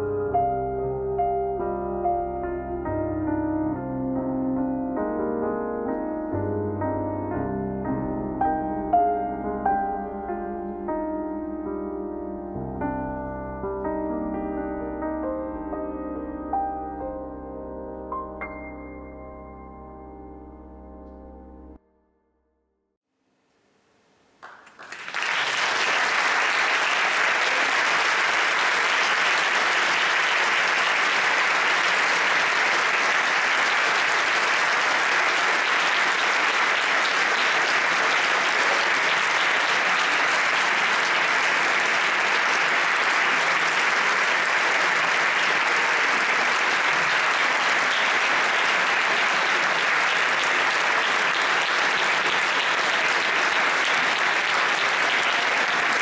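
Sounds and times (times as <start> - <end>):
audience clapping: 24.3 - 56.0.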